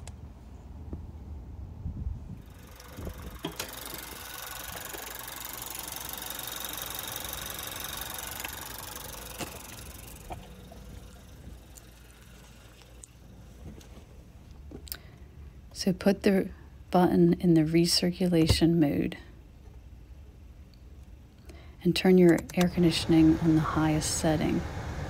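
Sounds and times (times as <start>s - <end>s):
car engine idling: 2.4s - 14.6s.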